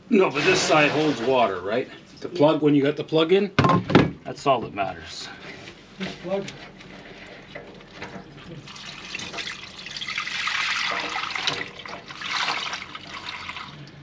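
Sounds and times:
water splashing into sink: 8.6 - 13.8.

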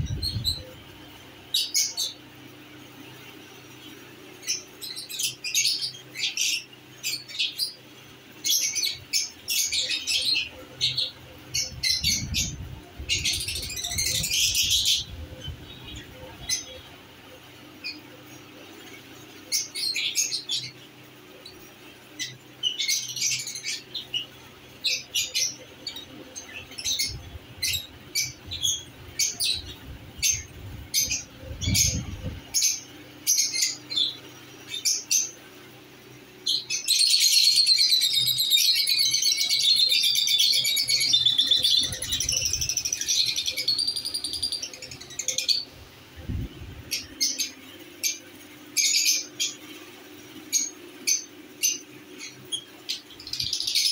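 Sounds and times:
lovebirds chirping: 0.0 - 35.5, 36.4 - 53.9.

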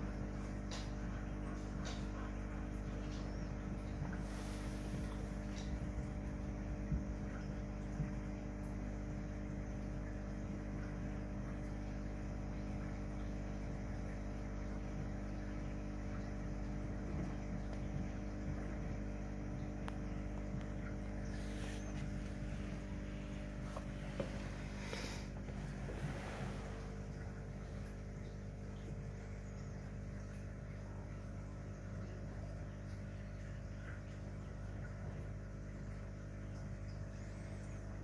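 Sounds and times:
aquarium equipment humming: 0.0 - 38.0.

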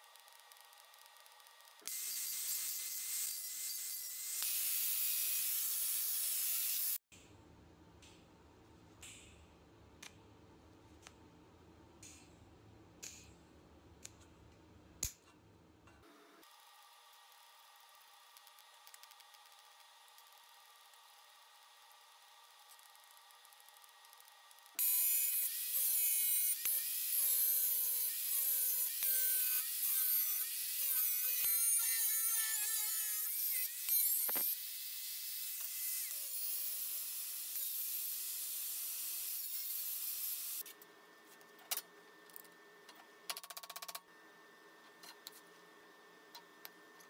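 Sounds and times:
angle grinder cutting sheet steel: 1.9 - 7.0, 24.8 - 40.6.

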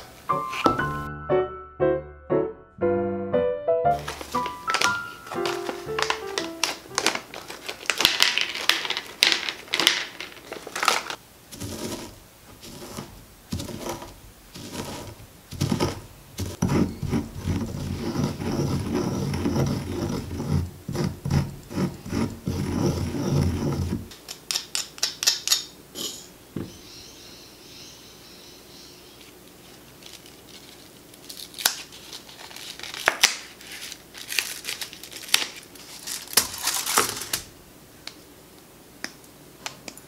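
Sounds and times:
snack bag crinkling: 3.9 - 14.0, 29.5 - 37.5
pestle grinding in stone mortar: 11.5 - 24.1.

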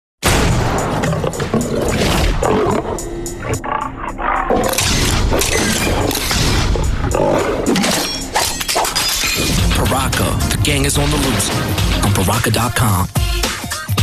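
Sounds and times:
crashes: 0.2 - 2.5, 4.7 - 12.6
monster snarling and roaring: 0.8 - 9.7.

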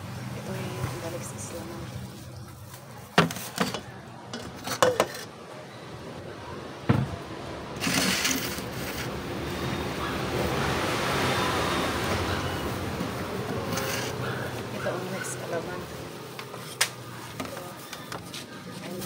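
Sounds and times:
plastic glove rustling: 1.4 - 3.8.

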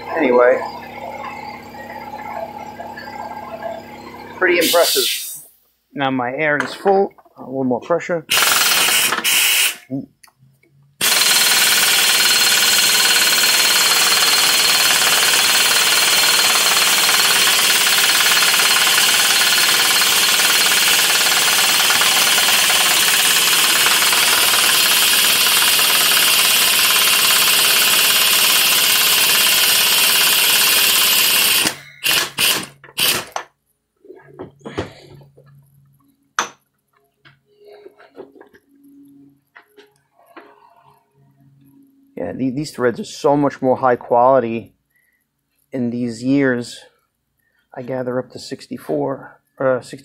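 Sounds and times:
pneumatic impact wrench hammering: 8.3 - 9.9, 11.0 - 33.5.

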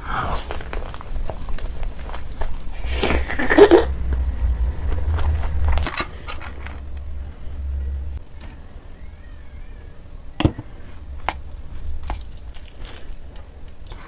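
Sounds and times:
biting and mouth noise: 0.0 - 7.0, 11.0 - 14.0
low rumble: 0.6 - 8.4.

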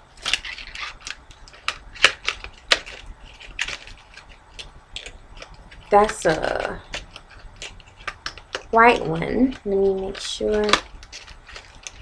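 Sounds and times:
fidget spinner clicks and taps: 1.0 - 12.0.

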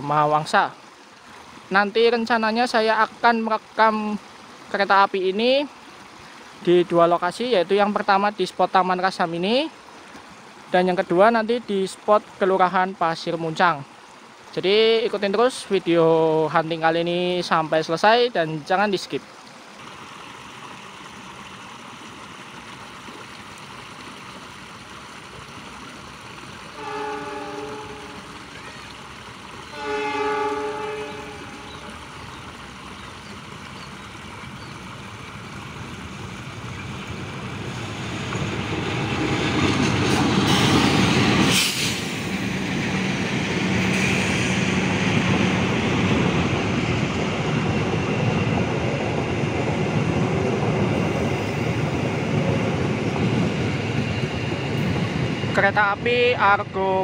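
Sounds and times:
train passing on rails: 24.3 - 57.0
train horn blasts: 26.8 - 28.3, 29.7 - 31.9.

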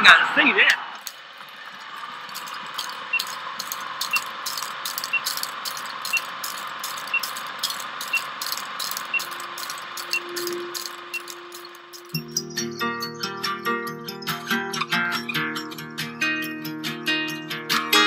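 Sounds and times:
film crackling: 0.6 - 12.2
film projector clattering: 0.7 - 12.2
short high beeps: 3.1 - 3.4, 4.0 - 12.2
low steady tone: 8.0 - 12.6.

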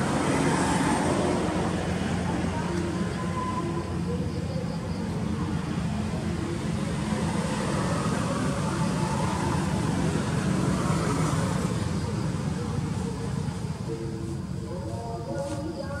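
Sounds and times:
low rumbling background noise: 0.0 - 16.0.

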